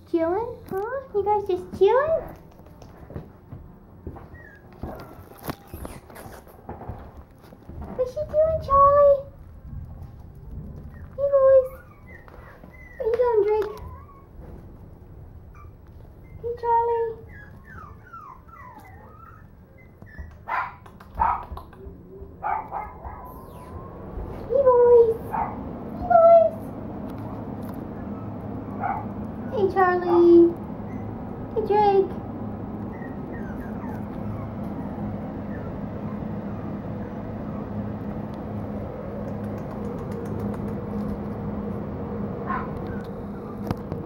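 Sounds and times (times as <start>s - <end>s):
low mechanical hum: 0.0s - 44.0s
puppies whimpering: 4.2s - 6.5s, 10.8s - 14.6s, 15.5s - 20.5s, 22.2s - 24.4s, 27.1s - 31.5s, 32.6s - 37.9s, 42.5s - 43.9s
puppies yipping: 4.2s - 6.6s, 10.8s - 14.6s, 15.5s - 24.2s, 27.1s - 31.5s, 32.6s - 38.0s, 42.5s - 44.0s
faint high squeaks: 4.3s - 6.6s.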